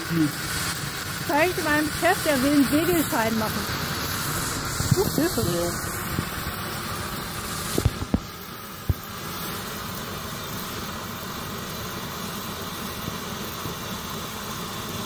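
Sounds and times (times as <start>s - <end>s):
signal flare hissing: 0.0s - 15.0s
sharp pops: 1.5s - 5.4s, 7.4s - 9.1s.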